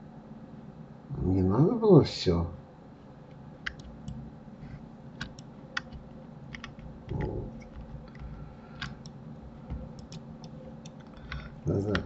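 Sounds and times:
keyboard keypresses: 3.6 - 4.2, 5.2 - 12.0
mouse clicks: 3.6 - 4.2, 5.2 - 12.0.

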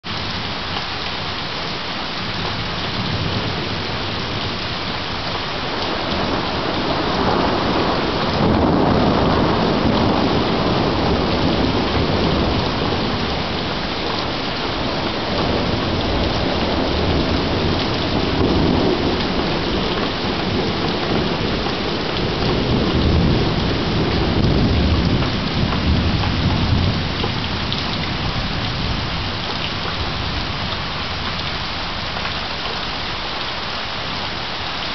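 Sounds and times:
heavy rain falling: 0.0 - 34.9
rolls of thunder: 5.7 - 13.6, 14.8 - 29.1.

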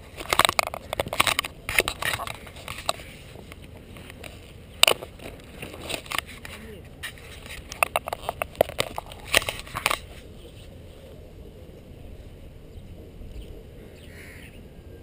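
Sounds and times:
wind noise on microphone: 0.0 - 15.0
camera handling knocks and clicks: 0.2 - 6.3, 7.4 - 10.1.

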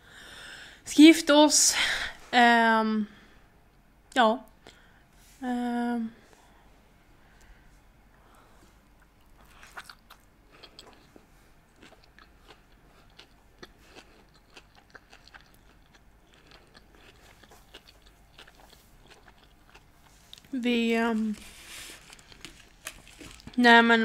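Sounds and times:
faint chewing with wet clicks: 8.3 - 20.5.

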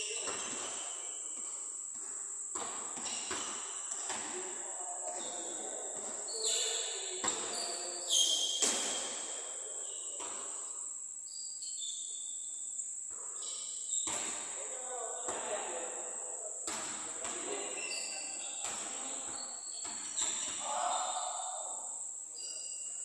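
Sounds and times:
shoe squeaks: 0.0 - 1.4, 5.2 - 14.4, 17.3 - 21.5, 22.3 - 23.0
basketballs bouncing on court: 0.0 - 9.2, 14.0 - 14.6, 15.2 - 15.7, 16.6 - 17.9, 18.5 - 20.7.

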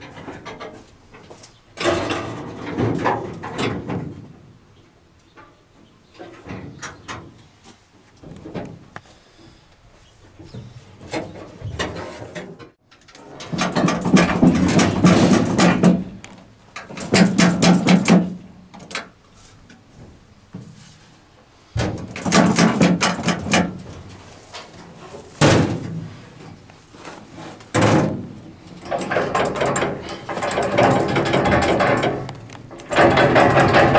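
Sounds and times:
metal clanking and rattling: 0.0 - 4.3, 11.1 - 16.2, 16.8 - 19.0, 21.8 - 26.1, 27.7 - 33.9.

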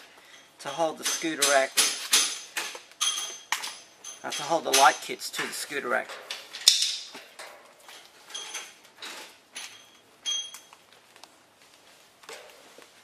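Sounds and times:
small metallic clinks: 0.2 - 5.1, 9.5 - 10.8.

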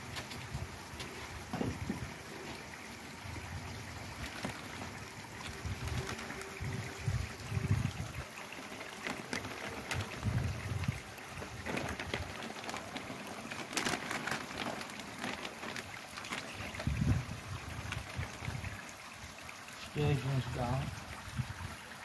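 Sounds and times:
water sloshing: 0.0 - 19.7
water trickling: 0.0 - 22.0
plastic bags crinkling: 4.0 - 6.6, 8.4 - 17.0.

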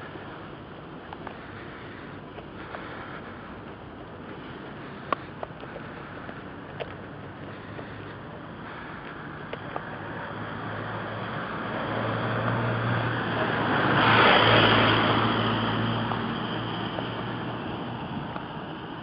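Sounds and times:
low engine hum: 0.0 - 19.0
vehicle driving past: 8.7 - 19.0.

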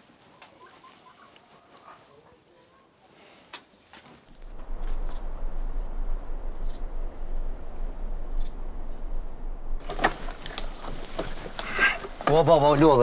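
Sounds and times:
crickets chirring: 4.3 - 13.0
low wind rumble: 4.3 - 13.0.

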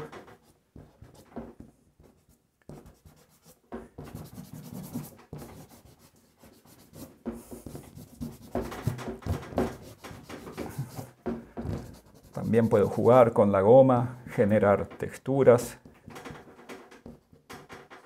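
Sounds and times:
eraser scraping pastel on paper: 2.7 - 11.1, 11.7 - 13.3.

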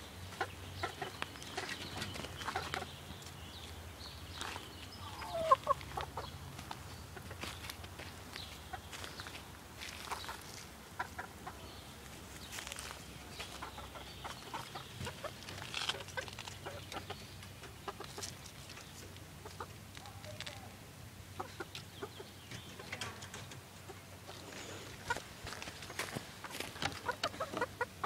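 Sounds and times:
chickens clucking: 0.0 - 28.0
clicks and rustles: 22.5 - 23.7.

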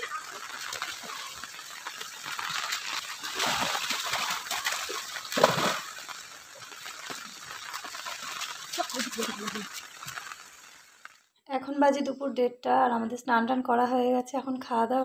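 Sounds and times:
children splashing in shallow water: 0.0 - 11.2.

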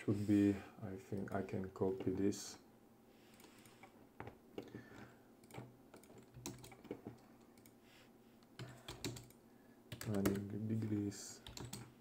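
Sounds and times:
keyboard and mouse clicks: 5.4 - 7.8, 8.5 - 10.5, 11.4 - 12.0.

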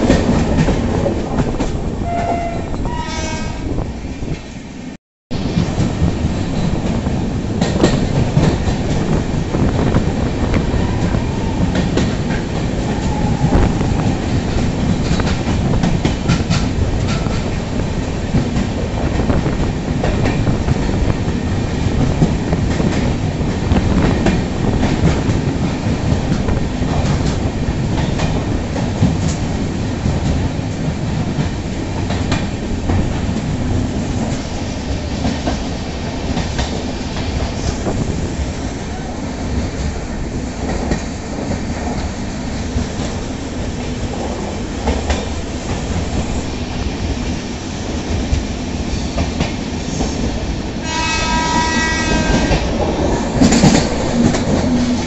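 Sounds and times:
train wheels rumbling on rail: 0.0 - 55.0.

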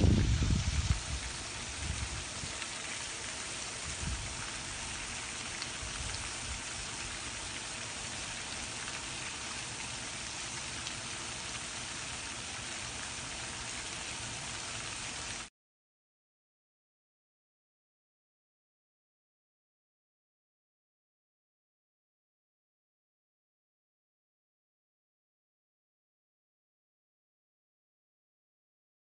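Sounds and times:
outdoor ambient hiss: 0.0 - 15.5.

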